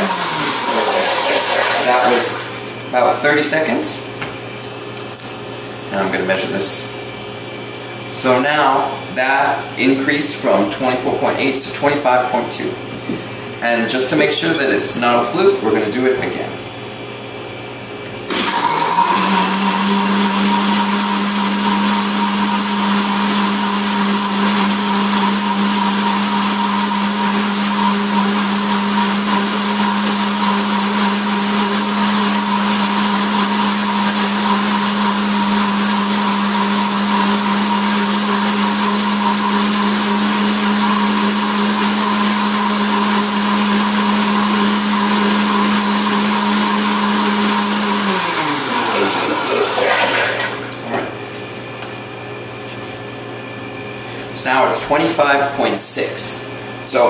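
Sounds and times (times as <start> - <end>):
blender motor running: 0.0 - 2.8, 18.2 - 51.0
water churning in blender: 0.0 - 2.8, 18.3 - 51.1.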